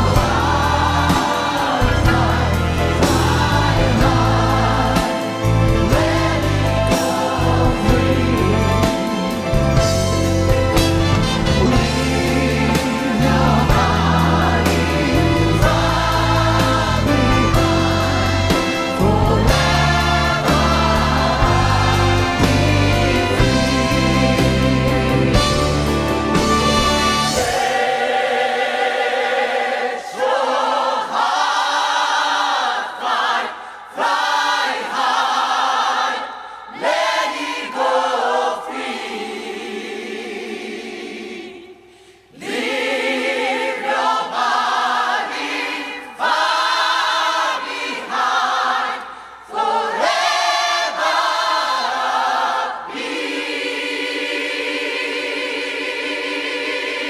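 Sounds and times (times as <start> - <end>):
full band with bass: 0.0 - 27.7
voices singing in harmony: 0.0 - 57.0.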